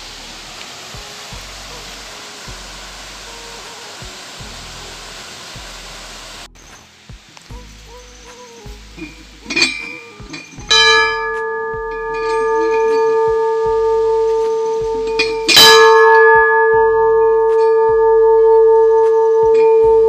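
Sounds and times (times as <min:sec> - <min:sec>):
large temple bell ringing: 0:09.0 - 0:20.0.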